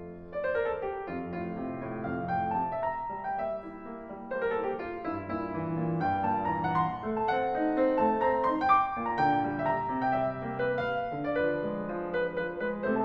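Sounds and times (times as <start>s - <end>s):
classical piano music: 0.0s - 13.0s.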